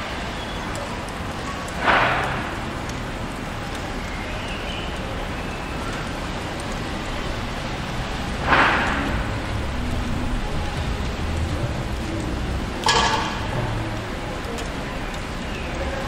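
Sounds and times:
city street traffic: 0:00.0 - 0:16.0
sudden loud rush of noise: 0:06.3 - 0:14.4.

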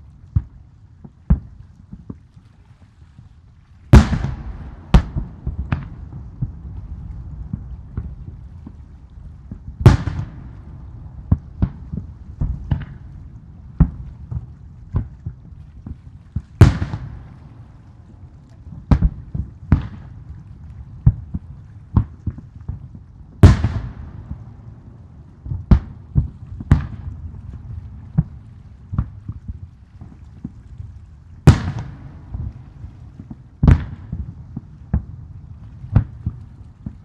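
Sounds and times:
firework booms: 0:03.9 - 0:08.8, 0:09.5 - 0:13.1, 0:16.5 - 0:17.4, 0:23.4 - 0:24.7, 0:25.4 - 0:27.2, 0:31.5 - 0:35.1.

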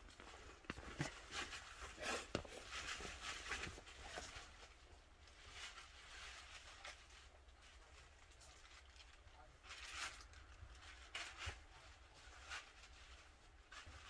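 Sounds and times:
faint footsteps: 0:00.0 - 0:04.7
handling knocks and rustles: 0:00.0 - 0:14.0.

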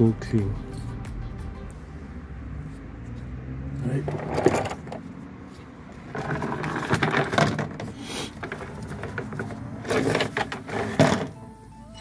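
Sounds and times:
handling knocks and scraping: 0:02.7 - 0:11.4.

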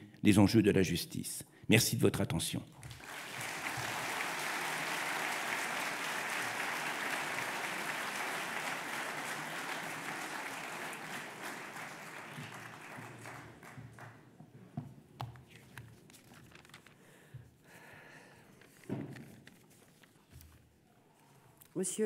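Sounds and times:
audience applauding: 0:02.8 - 0:14.3.

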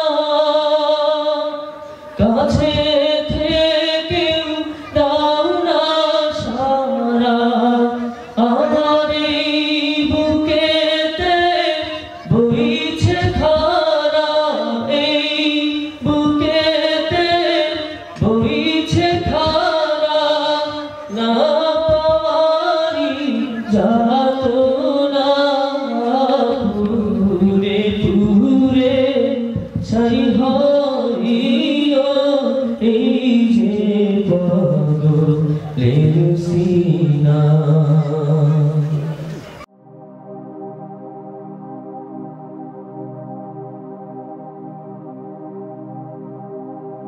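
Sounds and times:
man singing into a microphone: 0:00.0 - 0:39.5
singer breathing: 0:01.8 - 0:02.2.

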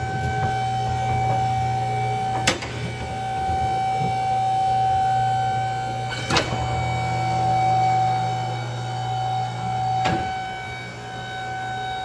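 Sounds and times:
hydraulic power unit hum: 0:00.0 - 0:12.0
steady whine: 0:00.0 - 0:12.0.

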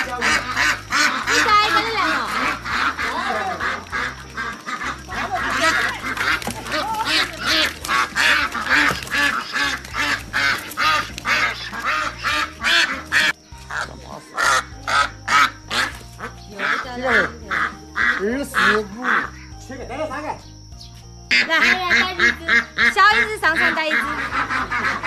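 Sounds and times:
wings flapping: 0:00.0 - 0:13.8
ducks quacking: 0:00.0 - 0:20.3, 0:21.3 - 0:25.0
background music with bass line: 0:00.0 - 0:25.0.

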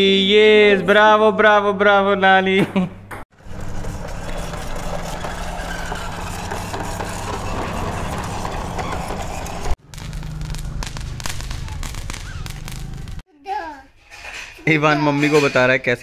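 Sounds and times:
firecracker fizzing and crackling: 0:03.4 - 0:13.2.

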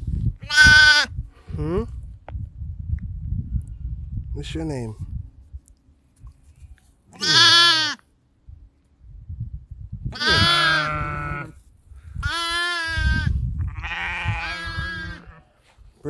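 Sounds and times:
lamb bleating: 0:00.4 - 0:01.1, 0:07.2 - 0:08.0, 0:10.2 - 0:11.6, 0:12.2 - 0:15.4.

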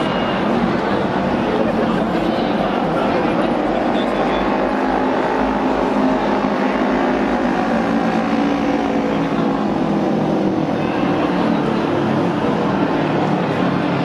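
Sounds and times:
racing motorcycle engines: 0:00.0 - 0:14.0.

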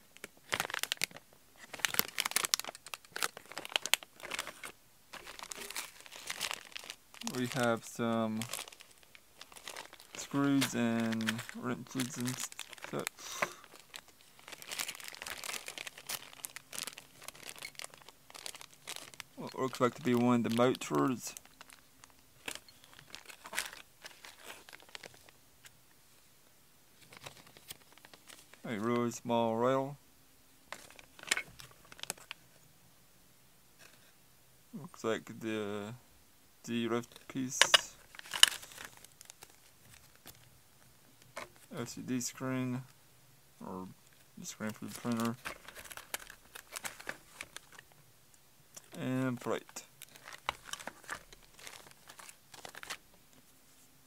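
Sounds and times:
plastic bag crinkling: 0:00.2 - 0:25.3, 0:27.0 - 0:28.6, 0:30.7 - 0:32.5, 0:37.0 - 0:40.5, 0:44.0 - 0:48.0, 0:49.6 - 0:53.2.

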